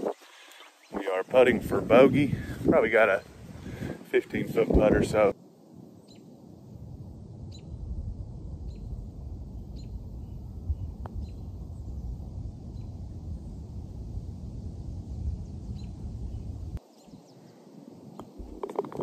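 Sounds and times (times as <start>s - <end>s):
birds chirping faintly: 0.0s - 2.1s, 8.6s - 19.0s
wind buffeting microphone: 0.8s - 5.4s, 6.0s - 19.0s.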